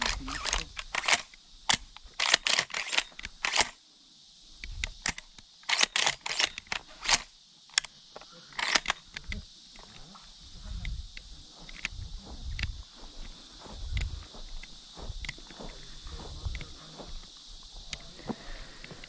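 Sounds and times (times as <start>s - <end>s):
sharp clicks and crackles: 0.0s - 3.8s, 4.6s - 10.1s
steady high hiss: 0.0s - 19.0s.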